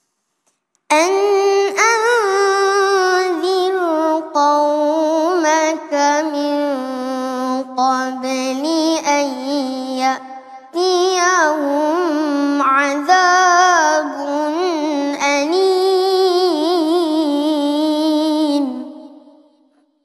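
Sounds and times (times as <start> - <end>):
boy reciting in melodic chant: 0.9 - 19.6.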